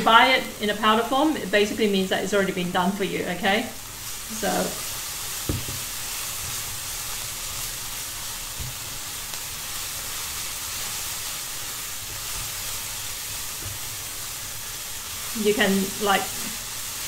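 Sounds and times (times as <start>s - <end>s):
chilies sizzling in oil: 0.0s - 17.0s
spatula stirring in wok: 3.8s - 17.0s.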